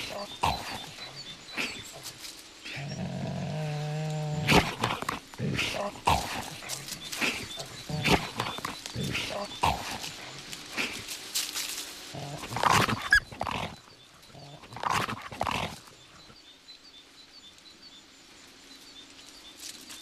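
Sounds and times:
wolves snarling: 0.0s - 11.3s, 12.1s - 16.4s.

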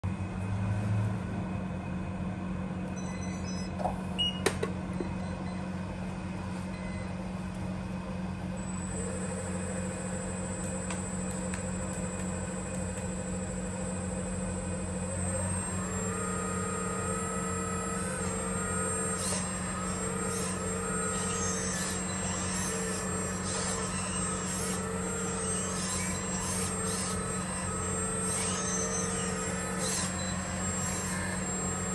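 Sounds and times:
electric pump humming: 8.2s - 31.9s
high whine: 8.5s - 31.9s.

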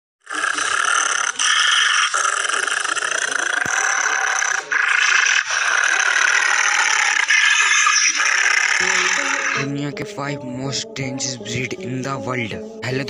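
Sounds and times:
dog snarling and growling: 0.2s - 9.7s.

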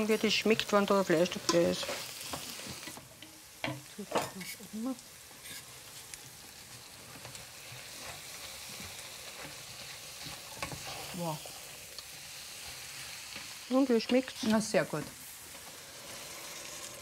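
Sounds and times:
onions sizzling in a pot: 0.0s - 17.0s.

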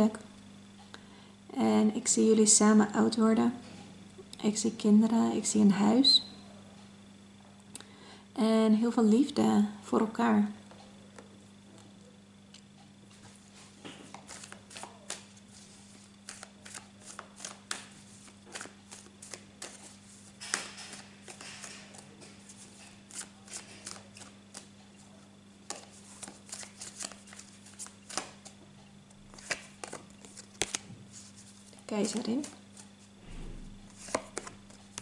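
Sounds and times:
faint low hum: 0.0s - 35.0s
cards shuffling: 14.0s - 24.7s, 25.6s - 28.6s, 29.3s - 33.0s, 33.9s - 35.0s.

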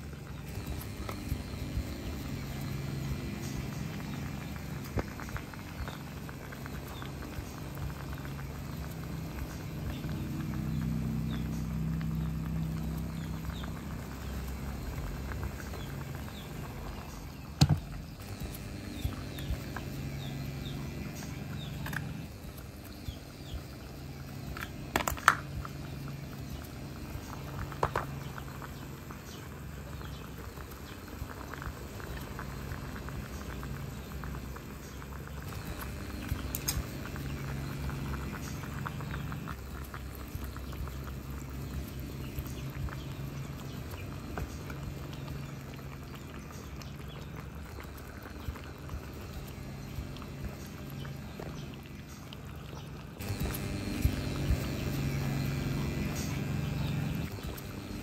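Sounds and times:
low electrical hum: 0.0s - 58.0s
water bubbling in a pan: 0.0s - 58.0s.

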